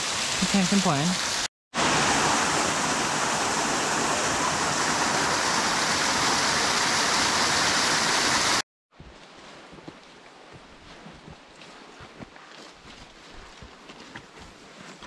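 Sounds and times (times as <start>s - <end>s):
water rushing over waterfall: 0.1s - 8.6s.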